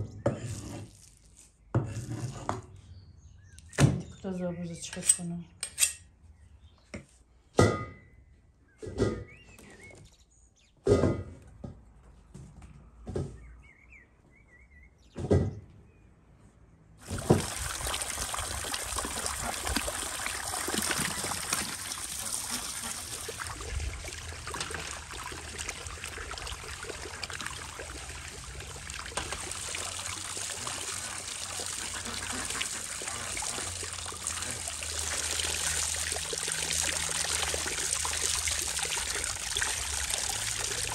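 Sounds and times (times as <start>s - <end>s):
running water splashing: 17.0s - 40.9s.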